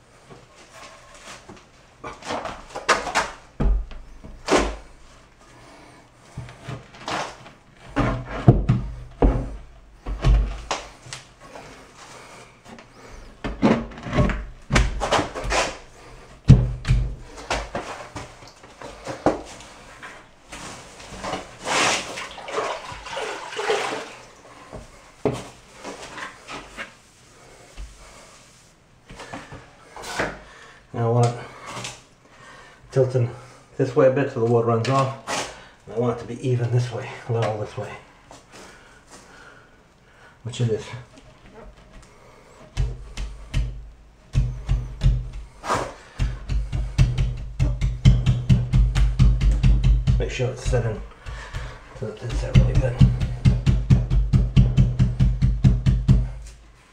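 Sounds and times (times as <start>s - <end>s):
marble slab knocking and thumping: 42.7s - 56.3s.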